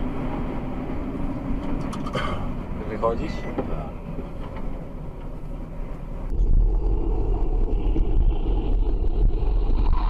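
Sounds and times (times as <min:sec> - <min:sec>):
car road and engine rumble: 0:00.0 - 0:10.0
wind noise on microphone: 0:06.3 - 0:10.0.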